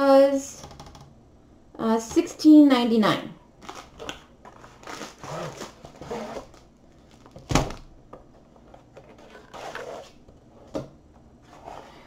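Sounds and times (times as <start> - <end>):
plastic wrap rustling and sliding: 3.6 - 7.8.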